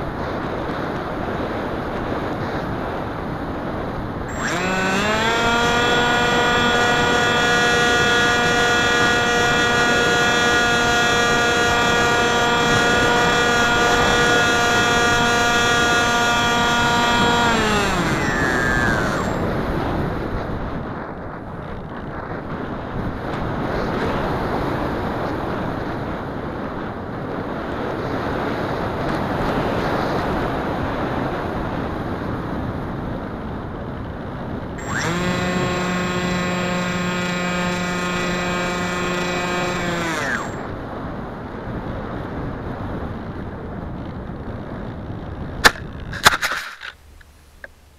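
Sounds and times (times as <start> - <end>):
wind rushing over camera: 0.0 - 47.9
electric motor and propeller: 3.7 - 20.9, 34.8 - 41.2, 45.6 - 47.0.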